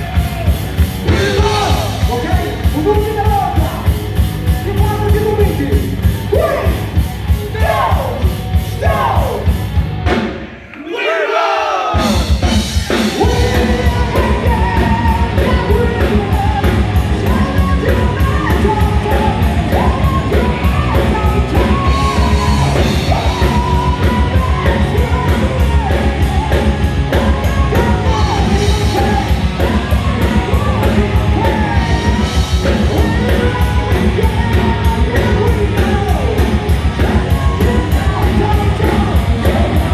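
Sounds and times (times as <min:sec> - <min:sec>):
singer belting vocals: 0:00.0 - 0:09.6, 0:10.6 - 0:39.9
heavy metal band playing live: 0:00.0 - 0:10.6, 0:11.9 - 0:39.9.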